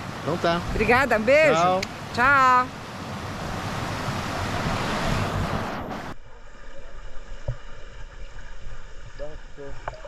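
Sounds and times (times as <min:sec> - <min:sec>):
wind: 0:00.0 - 0:10.0.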